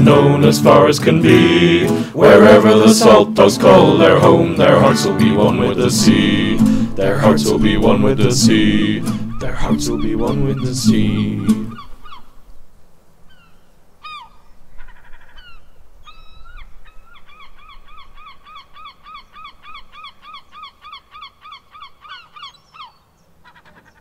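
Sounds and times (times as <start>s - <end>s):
gulls calling: 0.0s - 12.4s.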